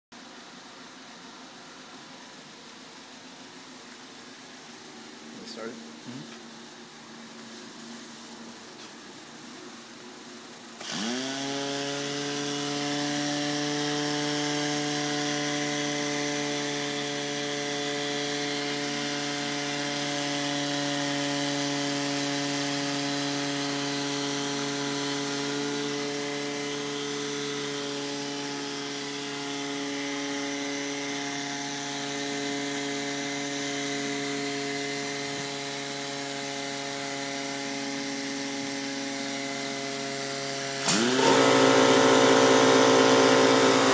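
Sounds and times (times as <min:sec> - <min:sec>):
electric motor whine: 0:10.8 - 0:43.9.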